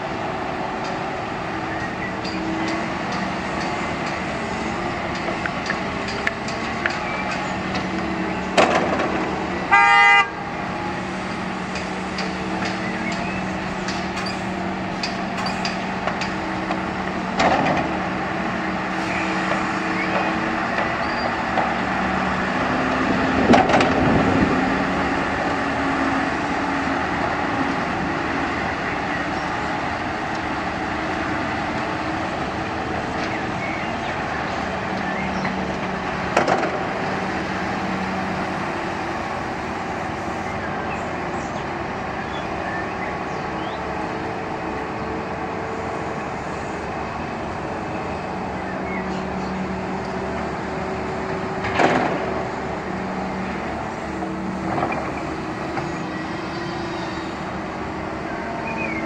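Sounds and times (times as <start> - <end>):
diesel engines running: 0.0 - 59.0
loud horn: 9.6 - 10.7.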